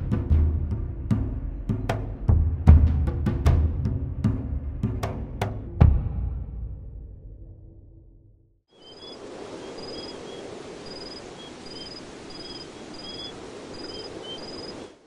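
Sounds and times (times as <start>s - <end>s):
crickets chirping: 8.7s - 15.0s
steady background hiss: 8.8s - 15.0s.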